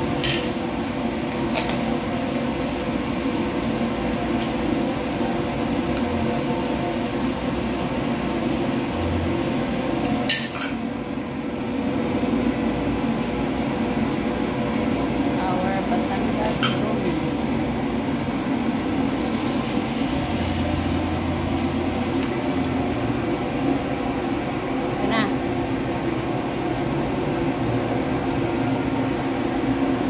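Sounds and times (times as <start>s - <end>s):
kitchen appliance motor humming: 18.7s - 23.8s.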